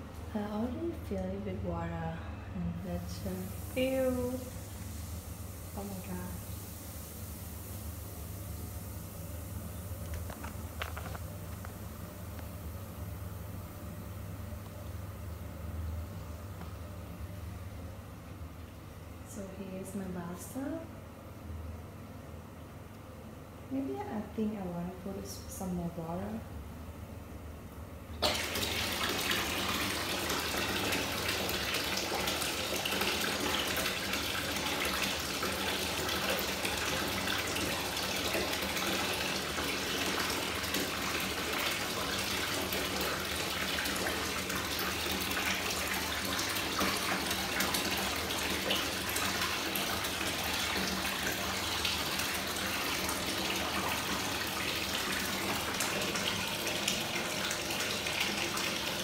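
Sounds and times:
bath tap running into tub: 2.8 - 13.2, 28.2 - 59.0.

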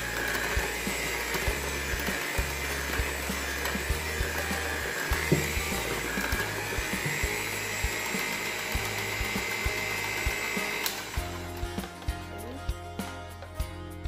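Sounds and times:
electric hand mixer whining: 0.0 - 13.0.

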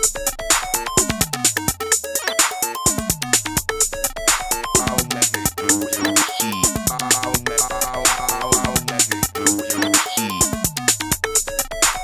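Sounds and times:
short synth notes: 6.7 - 8.8.

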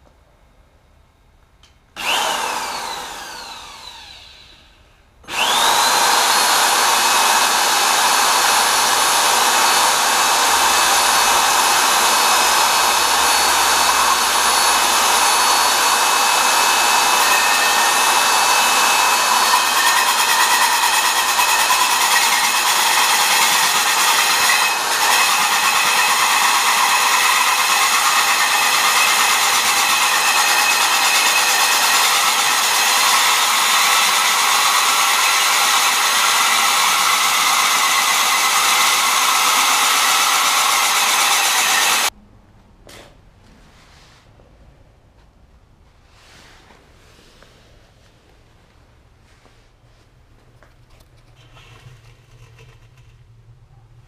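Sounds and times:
cordless drill boring into brick: 2.0 - 4.7, 5.3 - 42.1.

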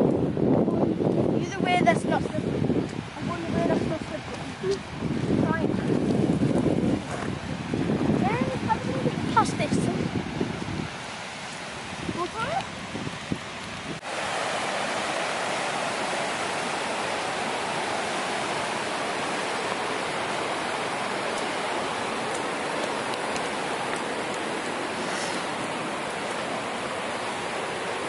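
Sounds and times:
river rapids rushing over rocks: 13.4 - 28.0.

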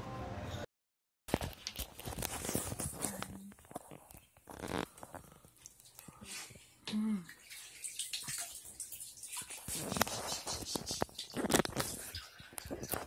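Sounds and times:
bathwater splashing: 4.2 - 13.0.

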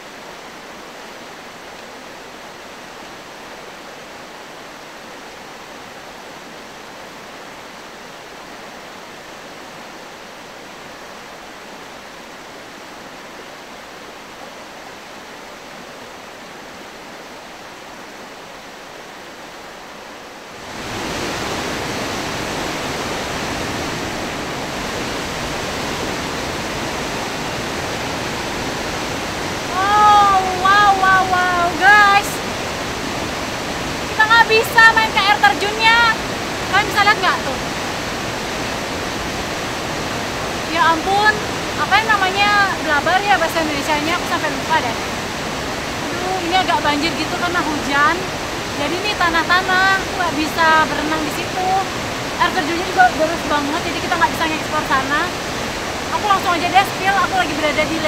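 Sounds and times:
river rushing in flood: 0.0 - 58.0
waterfall in heavy flow: 0.0 - 58.0.

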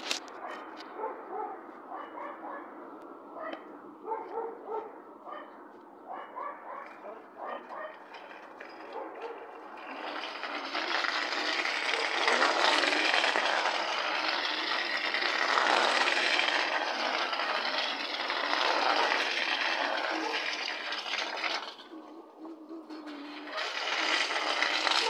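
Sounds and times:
toy car rattling on bricks: 0.0 - 0.9, 6.7 - 25.0.

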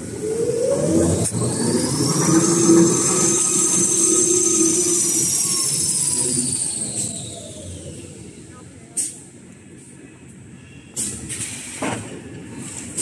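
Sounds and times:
machine high whine: 0.0 - 8.6
low mechanical hum: 0.0 - 9.9.

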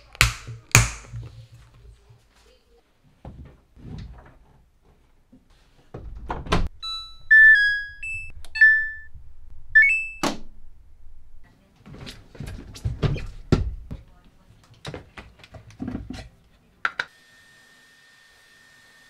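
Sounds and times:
soft knocks and rustles: 1.2 - 6.5
electronic beeps: 6.8 - 9.1, 9.8 - 10.2.

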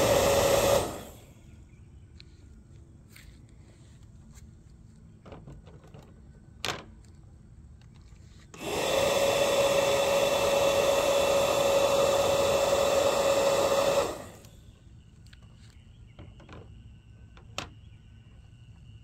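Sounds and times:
small motor whining: 0.0 - 1.6, 8.4 - 15.8.

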